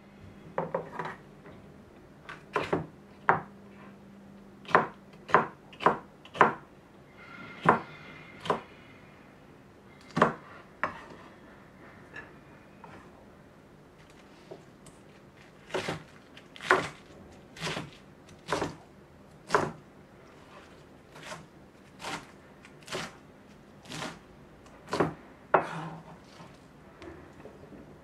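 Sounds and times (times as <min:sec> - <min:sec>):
knife cutting cabbage on board: 0:15.4 - 0:18.8, 0:20.4 - 0:23.2, 0:23.8 - 0:24.2.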